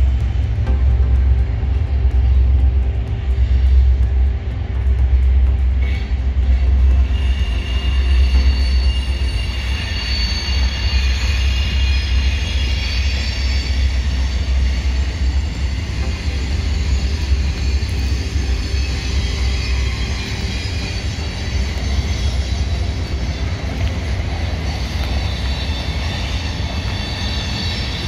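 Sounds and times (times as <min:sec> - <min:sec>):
deep steady rumble: 0:00.0 - 0:28.0
train wheels squealing: 0:05.7 - 0:28.0.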